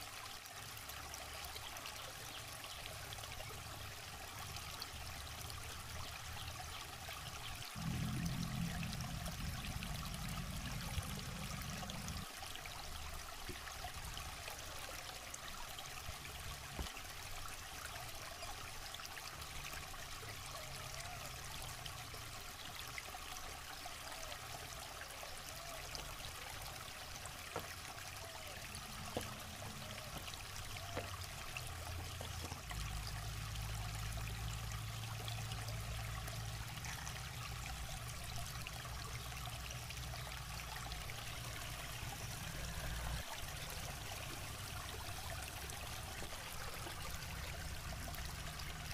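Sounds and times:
river trickling over stones: 0.0 - 48.9
low rumble: 7.8 - 12.2.

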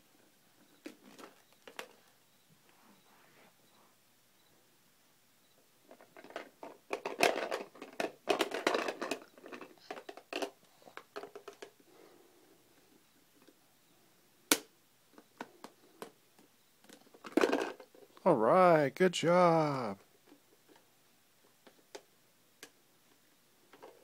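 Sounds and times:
plastic toys clattering: 5.9 - 11.8, 16.8 - 18.2, 23.7 - 24.0.

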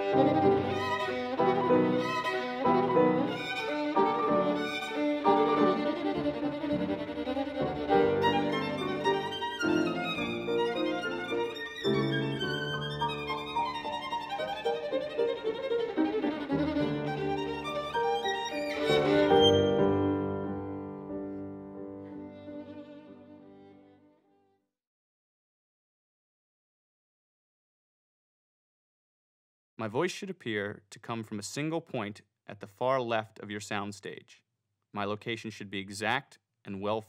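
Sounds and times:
instrumental music: 0.0 - 24.2.

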